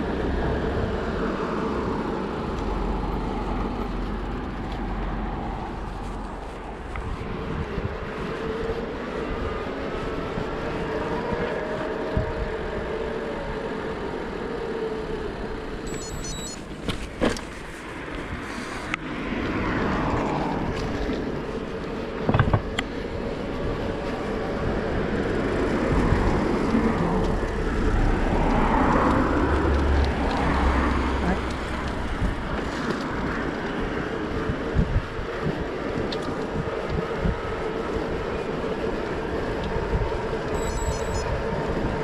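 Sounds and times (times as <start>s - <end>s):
wind and road noise: 0.0s - 42.0s
vehicle passing: 17.5s - 42.0s.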